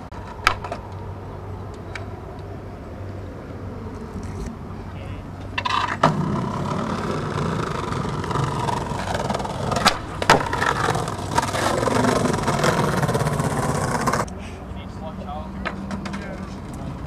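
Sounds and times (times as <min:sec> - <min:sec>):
skateboard wheels rolling on concrete: 0:00.0 - 0:14.4, 0:15.0 - 0:17.0
skateboard landing: 0:00.2 - 0:00.8, 0:05.6 - 0:14.3
skateboard clacking down: 0:05.6 - 0:14.3
skateboard tail pop: 0:09.7 - 0:10.7.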